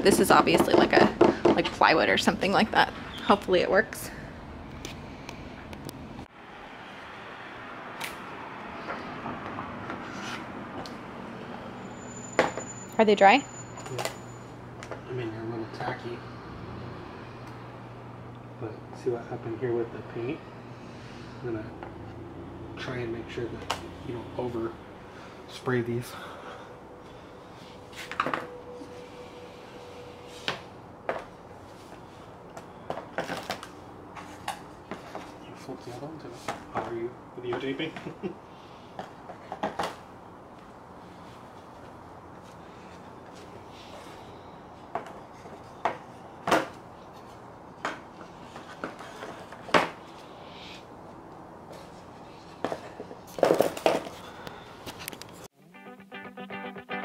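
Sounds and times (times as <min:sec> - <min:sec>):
guitar music: 0:55.5 - 0:57.0.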